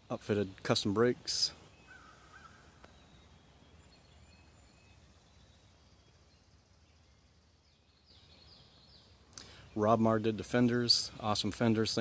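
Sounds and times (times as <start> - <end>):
faint bird chirps: 0.0 - 11.6.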